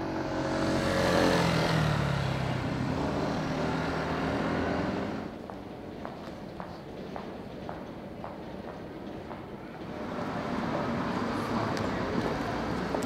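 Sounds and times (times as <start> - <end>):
vehicle engine passing by: 0.0 - 5.3
traffic noise: 0.0 - 13.0.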